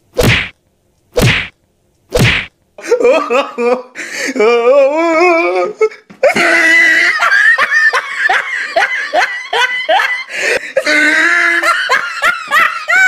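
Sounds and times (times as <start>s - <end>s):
person laughing: 2.8s - 3.9s, 6.2s - 13.0s.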